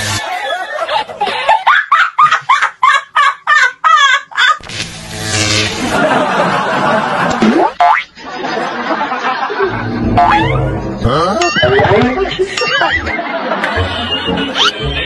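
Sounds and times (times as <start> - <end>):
high-pitched laugh-like calls: 14.5 - 14.8.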